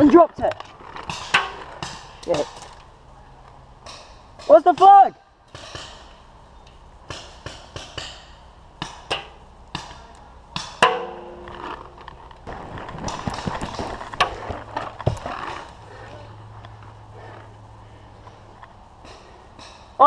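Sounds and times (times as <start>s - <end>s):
footsteps rustling dry leaves: 11.2s - 16.1s.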